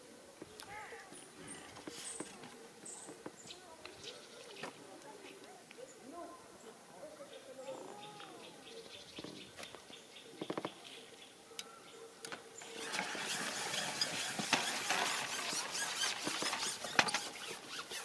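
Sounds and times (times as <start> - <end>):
fishing pole rattling and rubbing: 12.6 - 18.0.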